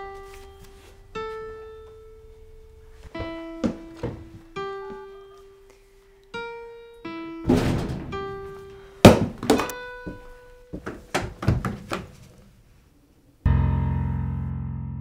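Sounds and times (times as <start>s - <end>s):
held piano notes: 0.0s - 11.1s
sharp loud thumps: 7.5s - 8.5s, 9.1s - 9.7s.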